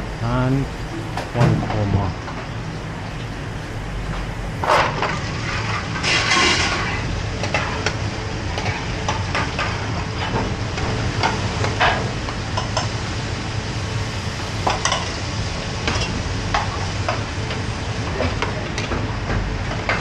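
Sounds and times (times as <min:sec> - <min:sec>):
steady low hum: 0:00.0 - 0:20.0
curry sizzling in pans: 0:02.1 - 0:20.0.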